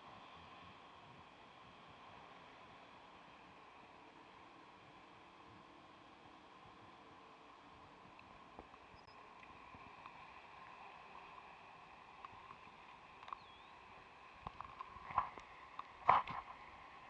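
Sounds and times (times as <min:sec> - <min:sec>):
faint outdoor background: 0:00.0 - 0:17.0
light clicks: 0:12.2 - 0:13.6.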